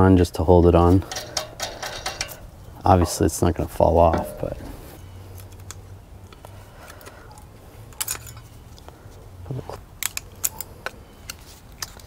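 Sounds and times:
screwdriver clicking and scraping metal: 1.0 - 2.4.

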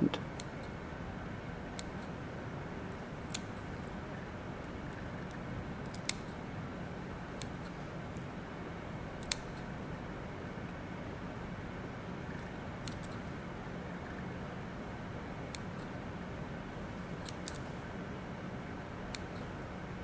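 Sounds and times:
scissors snipping clicks: 0.3 - 0.8, 1.8 - 2.2, 3.2 - 3.7, 4.9 - 6.4, 7.3 - 8.3, 9.2 - 9.7, 12.4 - 13.3, 15.5 - 16.0, 17.2 - 17.7, 19.0 - 19.5.

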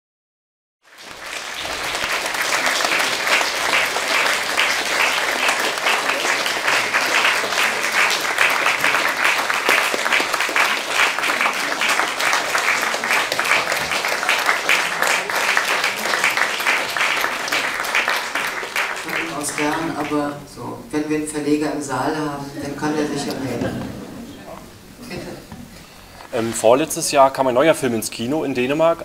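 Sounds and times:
audience applauding: 0.8 - 20.4.

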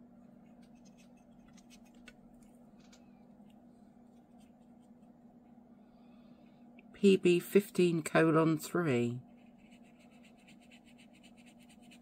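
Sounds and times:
steady low hum: 0.0 - 12.0
faint ticks and scratches: 0.2 - 5.2, 9.2 - 12.0.

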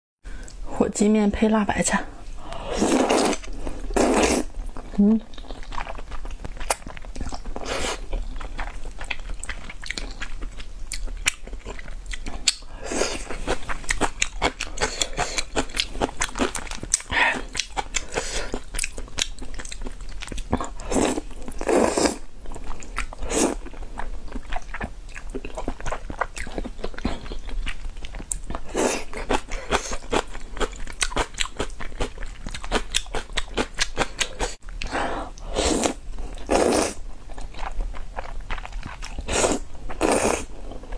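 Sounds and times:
person slurping noodles: 2.6 - 4.5, 7.6 - 8.0, 20.8 - 22.2, 23.2 - 23.6, 34.3 - 37.0, 39.2 - 40.5
wet chewing: 2.8 - 40.9.

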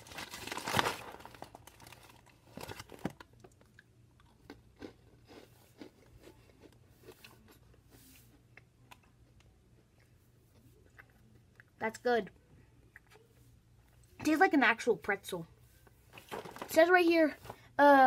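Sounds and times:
snack bag rustling: 0.0 - 7.6
crackers being chewed: 0.0 - 13.2.

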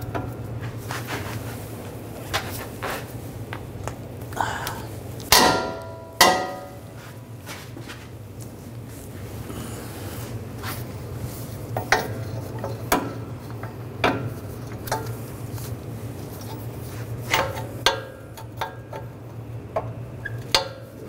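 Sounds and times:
socket wrench metallic clanks: 11.8 - 15.2, 17.3 - 19.1, 19.8 - 21.0.

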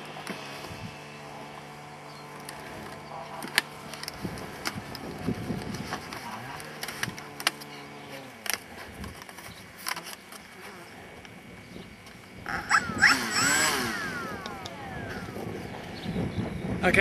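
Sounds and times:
animal calls sliding in pitch: 12.5 - 15.6.

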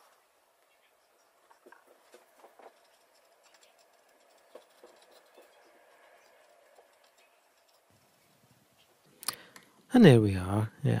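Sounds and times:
cotton bud scratching on plastic: 1.0 - 8.4.

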